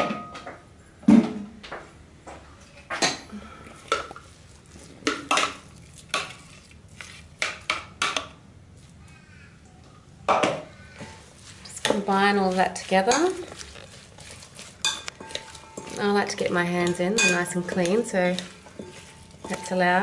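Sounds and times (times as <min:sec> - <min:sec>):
utensil clinking against a bowl: 0:05.0 - 0:08.3, 0:10.3 - 0:20.0.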